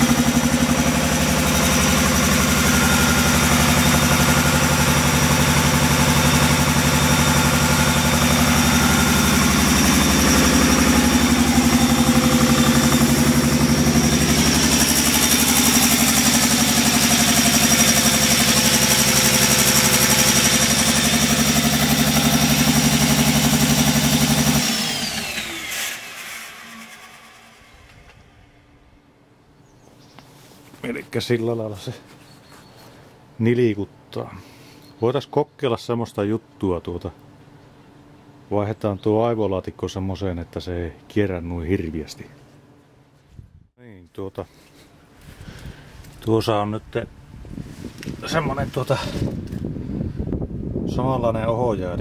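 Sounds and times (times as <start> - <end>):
high whine: 0.0 - 29.2
generator engine running: 0.0 - 29.4.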